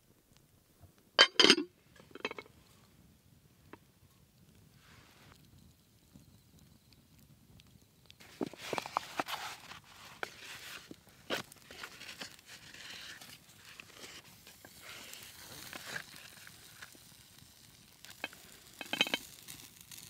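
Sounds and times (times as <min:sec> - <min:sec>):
glass dish clinking on metal grate: 0:01.2 - 0:02.4
campfire crackling and popping: 0:01.7 - 0:20.0.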